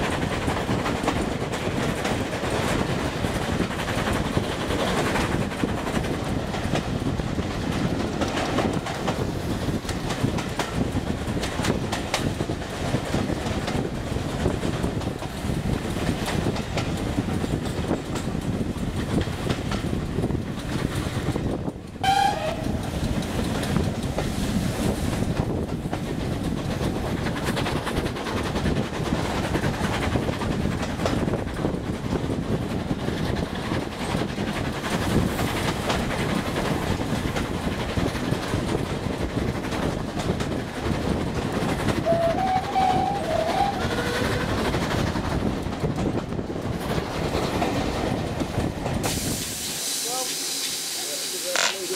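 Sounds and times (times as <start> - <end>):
train wheels rumbling on track: 0.0 - 51.9
train whistle toot: 22.0 - 22.8, 42.0 - 44.5.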